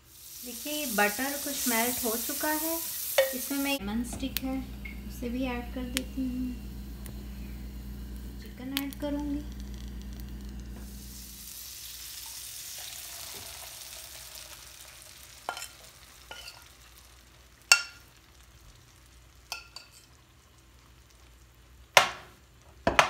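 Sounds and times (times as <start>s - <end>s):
chicken sizzling in butter: 0.0s - 22.6s
metal spoon clinking against pan: 15.5s - 16.7s, 17.7s - 18.0s, 19.5s - 20.1s.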